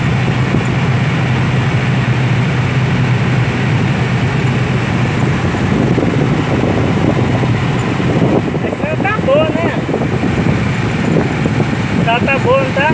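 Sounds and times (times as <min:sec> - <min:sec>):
car engine hum: 0:00.0 - 0:12.9
tyre and wind noise: 0:04.4 - 0:12.9.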